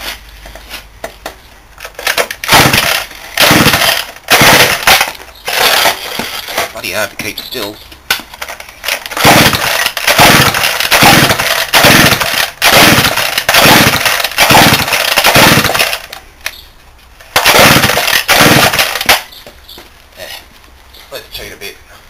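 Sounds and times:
chainsaw engine turning over: 2.0 - 6.2, 8.8 - 16.2, 17.3 - 19.3.

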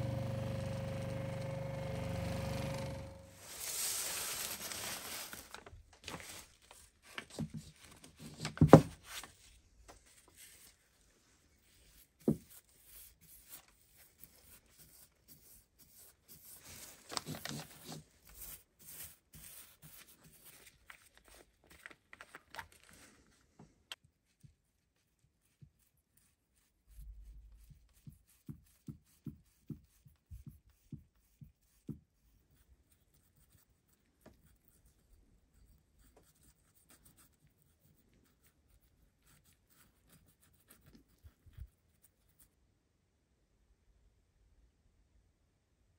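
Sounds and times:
rustling: 3.2 - 15.1, 16.0 - 27.6.

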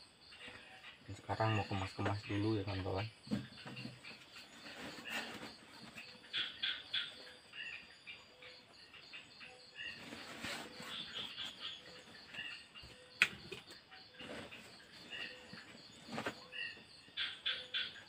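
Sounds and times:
birds chirping: 0.0 - 18.0.

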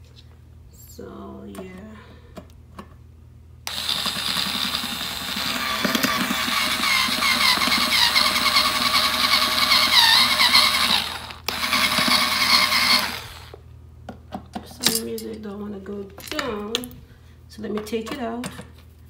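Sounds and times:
cordless drill driving screws: 3.7 - 13.6.

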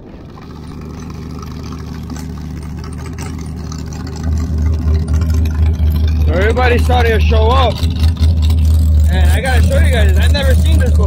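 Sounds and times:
motorboat engines rumbling: 0.0 - 11.0.

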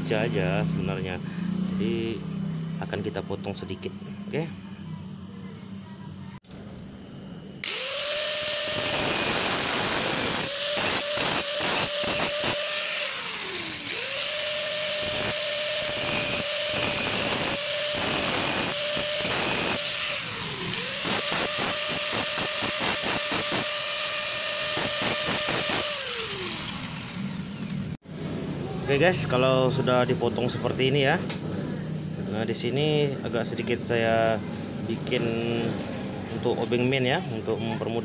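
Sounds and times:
angle grinder cutting metal: 7.6 - 28.0.

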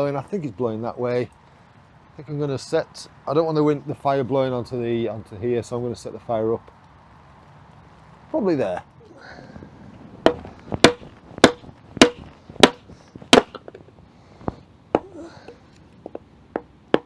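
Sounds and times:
hatchet chopping wood: 10.3 - 13.6, 16.1 - 17.0.

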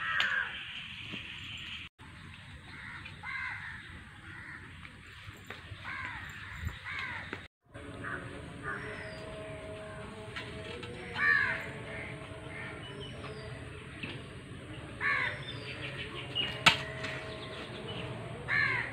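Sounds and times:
crows cawing: 0.0 - 0.6, 2.7 - 4.8, 5.8 - 9.7, 10.9 - 13.4, 15.0 - 15.7, 16.4 - 17.6, 18.4 - 18.9.

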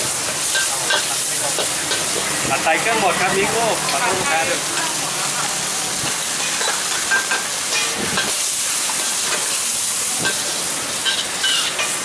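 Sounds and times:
food sizzling in a wok: 0.0 - 12.0
metal spatula scraping wok: 6.1 - 12.0.

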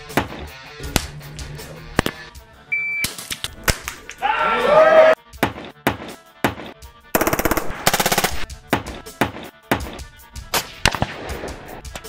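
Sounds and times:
music with drum beat: 5.3 - 12.0
automatic gunfire bursts: 7.2 - 8.5.

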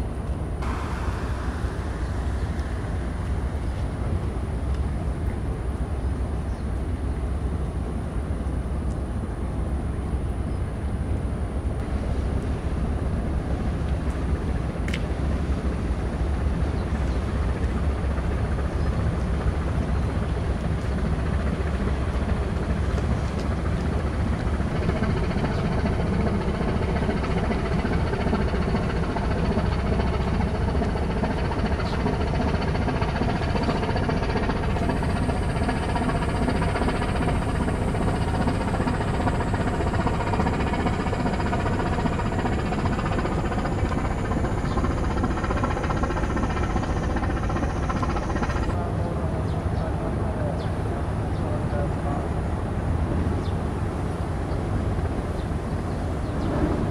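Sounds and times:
ship diesel engines rumbling: 0.6 - 5.2, 16.6 - 56.9
faint high whine: 0.6 - 6.7.

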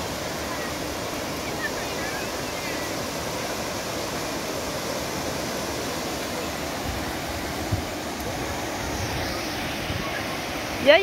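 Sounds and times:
surf washing onto beach: 0.0 - 11.0.

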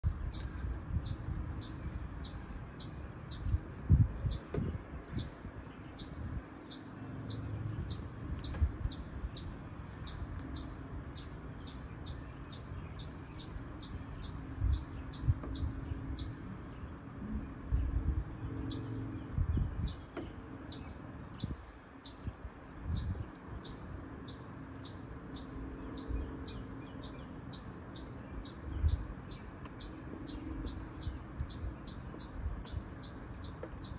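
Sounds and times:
chipmunk chipping: 5.2 - 16.4, 23.0 - 33.9.

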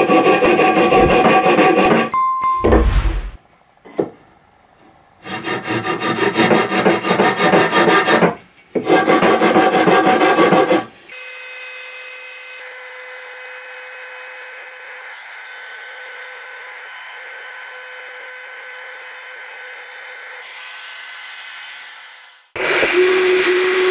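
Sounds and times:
wood rubbing rasping: 0.0 - 2.1, 5.3 - 8.2.

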